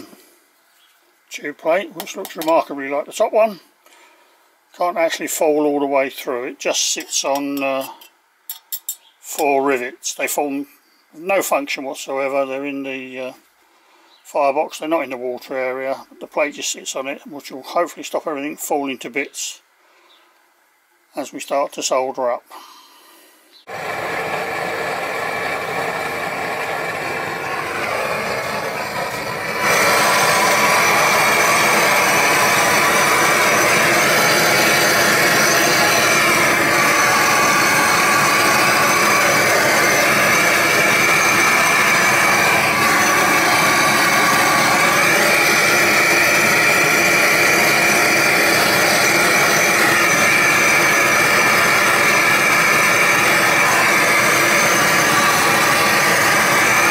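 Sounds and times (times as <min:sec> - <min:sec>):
gas blowtorch burning: 0:23.7 - 0:56.9.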